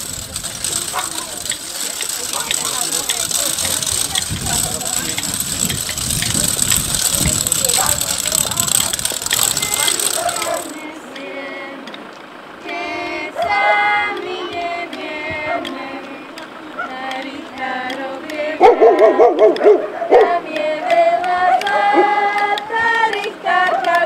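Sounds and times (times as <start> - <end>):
voices calling: 0.0 - 24.0
women and children singing: 6.1 - 24.0.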